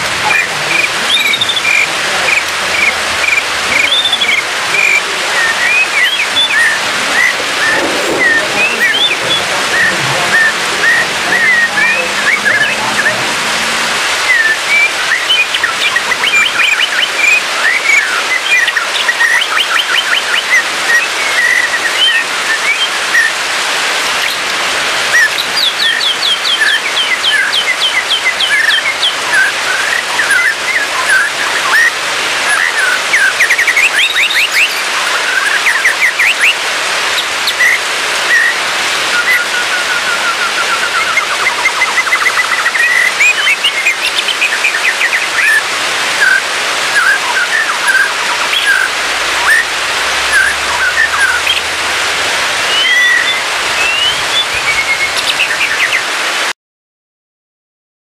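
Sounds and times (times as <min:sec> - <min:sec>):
steady hiss: 0:00.0 - 0:18.2
bird singing whistles: 0:00.3 - 0:13.2, 0:14.3 - 0:23.4, 0:25.1 - 0:36.6, 0:37.2 - 0:45.6, 0:46.2 - 0:51.6, 0:52.7 - 0:56.0.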